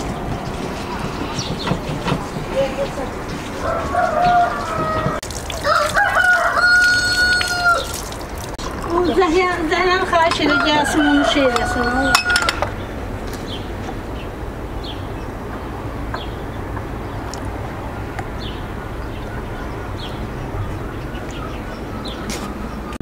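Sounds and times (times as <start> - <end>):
small birds chirping: 0.0 - 5.8, 12.7 - 23.0.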